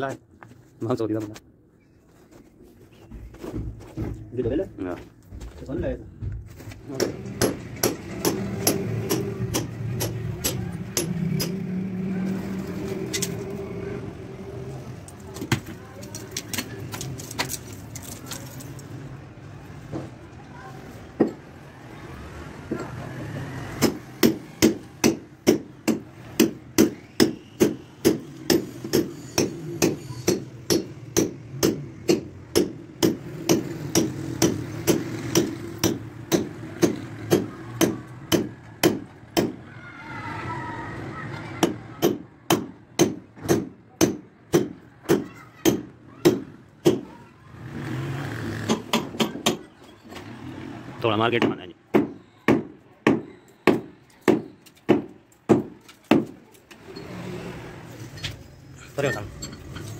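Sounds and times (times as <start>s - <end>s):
hammer blows: 6.8s - 13.4s, 23.7s - 39.7s.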